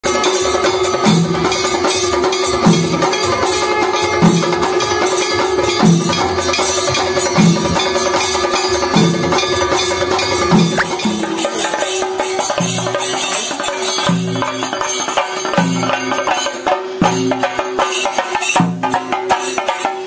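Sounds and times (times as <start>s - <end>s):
busy percussion: 0.0s - 20.0s
low drum beat: 10.5s - 11.5s.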